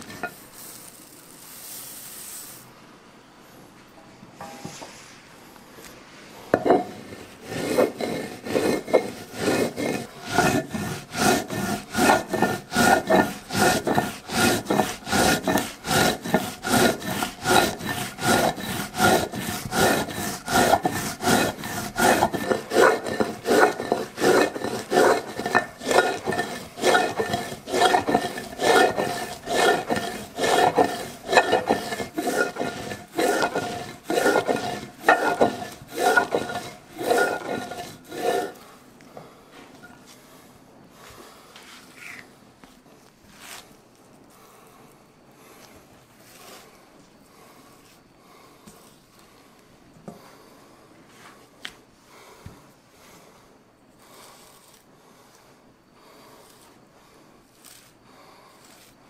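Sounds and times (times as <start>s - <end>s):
stone roller scraping on stone: 0.0s - 1.2s, 6.5s - 38.7s.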